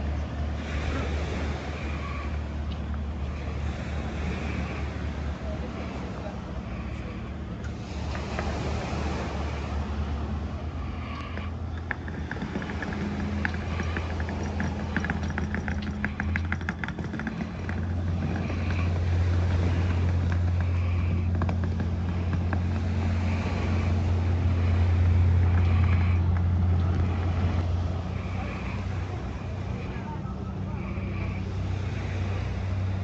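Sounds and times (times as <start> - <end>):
low engine hum: 0.0 - 33.0
fast rattle of clicks: 11.4 - 22.8.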